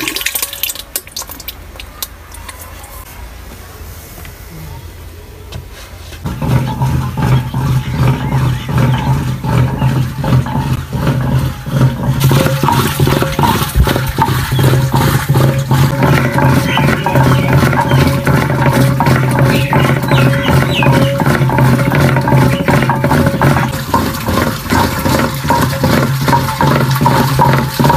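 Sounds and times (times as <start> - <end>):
wooden stick churning yogurt: 6.2 - 27.9.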